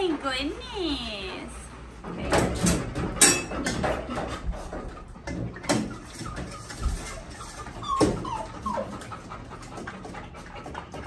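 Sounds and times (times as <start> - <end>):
metal kennel door clanking: 2.1 - 4.4
metal food bowl clanking: 2.3 - 7.7
dog whining: 5.9 - 9.6.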